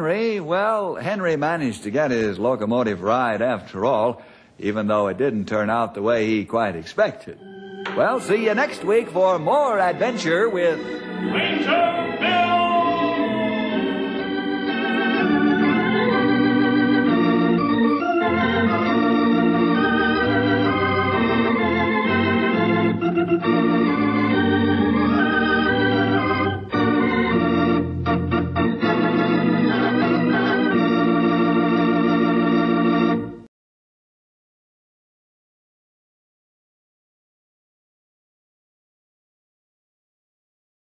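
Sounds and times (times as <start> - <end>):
organ playing held chords: 7.3 - 33.5.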